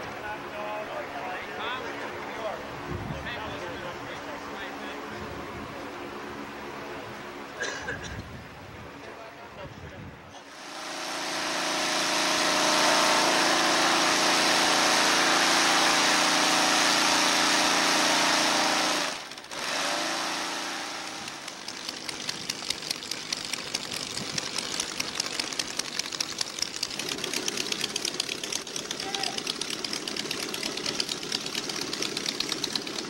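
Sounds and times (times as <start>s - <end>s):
air-cooled engine running: 10.4s - 33.0s
engine idling with even chugging: 10.4s - 33.0s.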